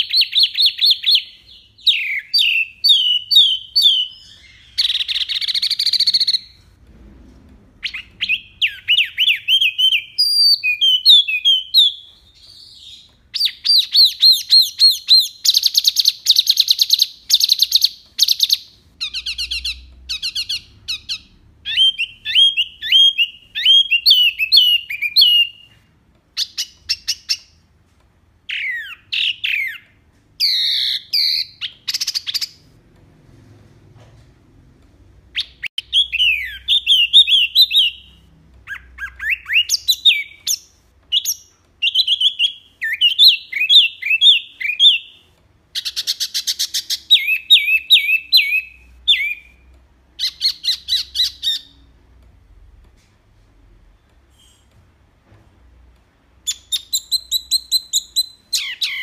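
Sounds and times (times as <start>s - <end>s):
songbird singing: 0.0s - 6.6s, 7.8s - 27.6s, 35.4s - 45.2s, 45.8s - 51.9s, 56.4s - 59.0s.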